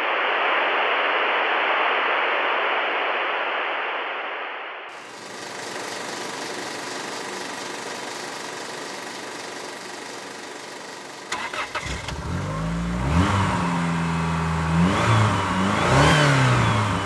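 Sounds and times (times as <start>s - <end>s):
noisy rush: 0.0s - 17.0s
motorcycle engine running: 5.0s - 17.0s.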